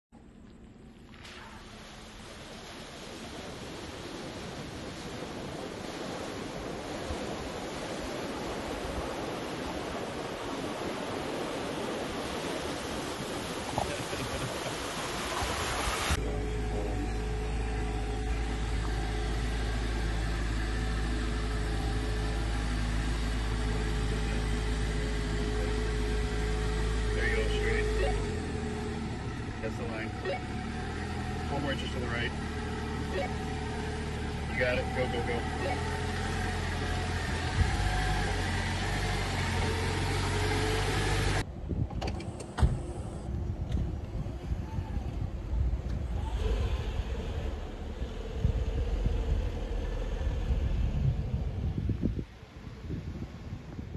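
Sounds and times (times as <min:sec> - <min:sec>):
off-road vehicle engine rumble: 0:00.1 - 0:53.9.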